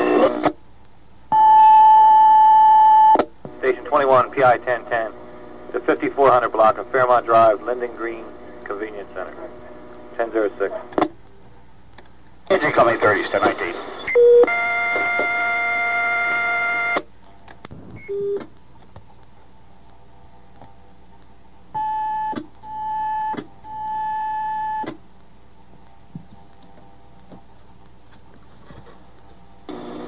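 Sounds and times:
beeps: 1.3s - 3.2s, 14.1s - 17.0s, 17.8s - 18.5s, 21.8s - 24.9s
two-tone radio alert: 1.3s - 5.2s
radio blip: 17.7s - 18.5s.

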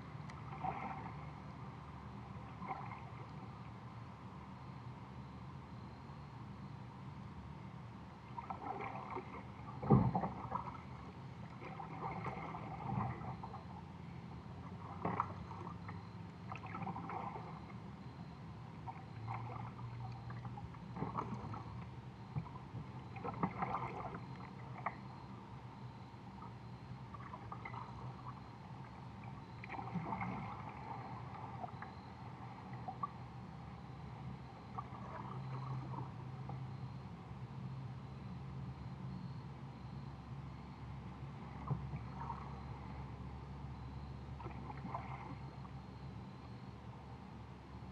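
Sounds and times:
paddle splashing water: 0.0s - 1.4s, 2.4s - 3.4s, 8.3s - 25.4s, 26.3s - 33.2s, 34.6s - 36.7s, 41.4s - 42.9s, 44.3s - 45.9s.

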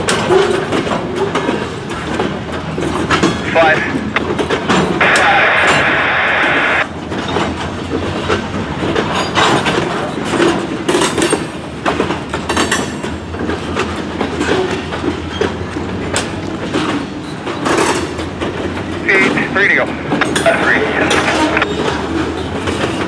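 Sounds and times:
train wheels clattering on rails: 0.0s - 6.0s, 6.8s - 23.0s
train rumble: 0.0s - 23.0s.

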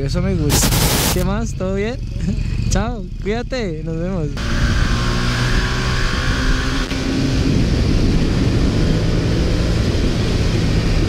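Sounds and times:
motorcycle engine running: 0.0s - 5.6s
dense rushing noise: 0.4s - 1.2s
higher hum: 0.5s - 1.3s.

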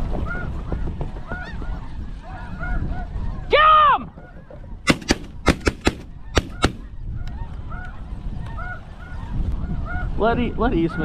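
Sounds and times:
wind noise on microphone: 0.0s - 11.0s
geese calling: 0.1s - 11.0s
shotgun shots: 4.9s - 6.9s.

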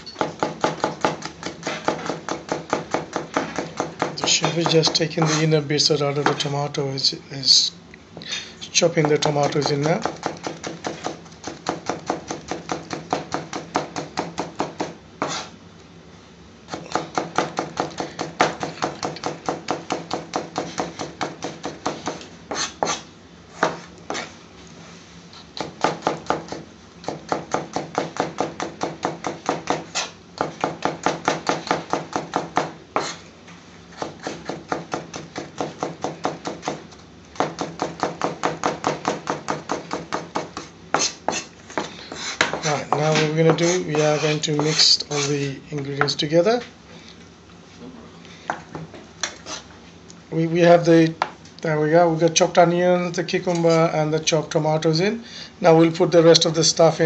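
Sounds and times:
knife chopping on plastic board: 0.2s - 5.4s, 9.0s - 15.5s, 16.7s - 23.0s, 23.6s - 24.3s, 25.6s - 33.2s, 34.0s - 36.8s, 37.4s - 45.0s.

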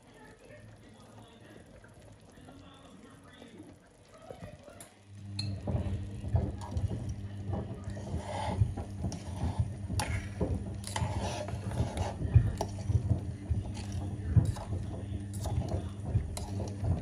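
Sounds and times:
metal utensil scraping saucepan: 5.4s - 17.0s.

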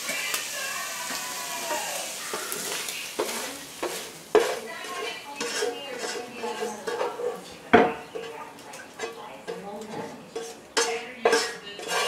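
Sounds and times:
fish sizzling in a pan: 0.0s - 7.2s
utensil scraping a pan: 0.0s - 12.0s.

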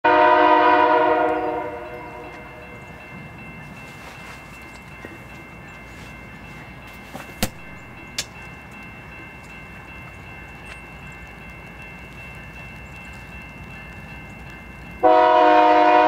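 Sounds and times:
locomotive air horn: 0.0s - 2.5s, 15.0s - 16.0s
train rumbling: 0.0s - 16.0s.

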